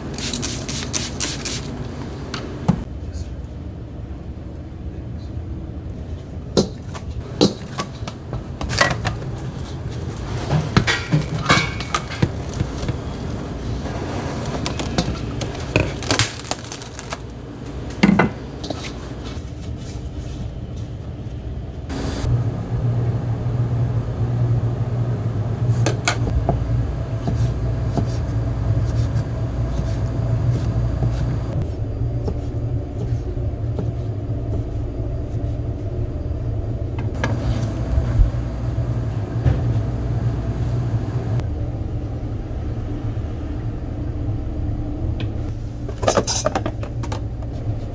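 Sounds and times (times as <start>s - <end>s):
low machine hum: 1.6s - 47.9s
utensils and dishes clinking: 10.2s - 13.0s.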